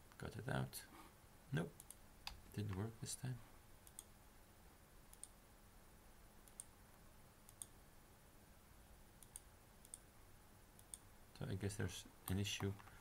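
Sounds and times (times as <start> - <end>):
computer mouse clicks: 1.8 - 2.9, 3.8 - 4.1, 5.1 - 5.4, 6.4 - 6.7, 7.5 - 7.8, 9.2 - 10.0, 10.8 - 11.0, 12.3 - 13.0.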